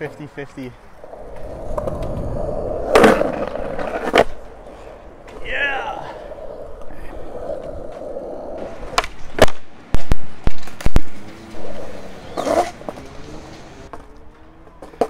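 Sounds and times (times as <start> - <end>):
skateboard wheels rolling on concrete: 0.0 - 15.0
skateboard scrape: 1.0 - 9.6, 10.6 - 14.1
skateboard clacks: 7.6 - 15.0.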